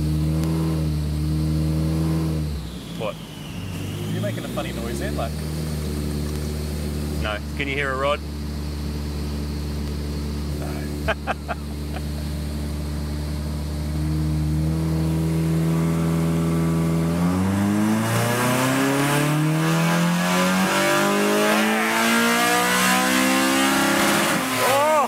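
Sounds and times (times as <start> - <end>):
car engine revving under load: 0.0 - 25.0.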